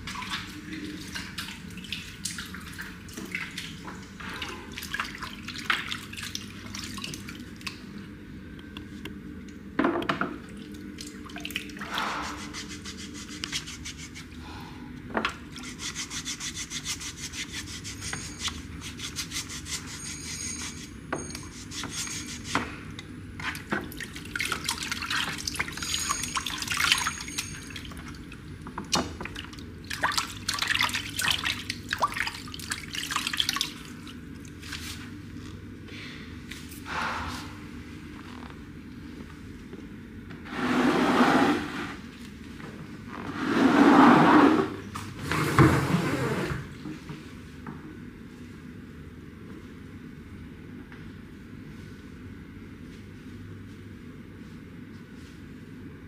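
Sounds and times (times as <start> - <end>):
water splashing in a basin: 0.0 - 3.8, 23.5 - 28.1, 29.2 - 34.9.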